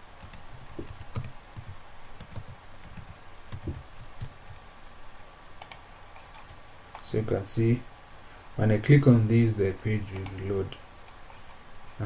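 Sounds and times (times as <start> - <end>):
keyboard typing: 0.2 - 4.6, 5.6 - 5.8.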